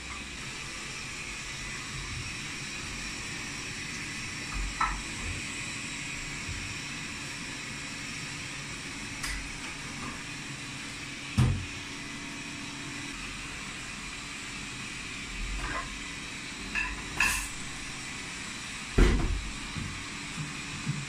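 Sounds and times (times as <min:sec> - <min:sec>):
dishes clinking: 0:16.8 - 0:17.7.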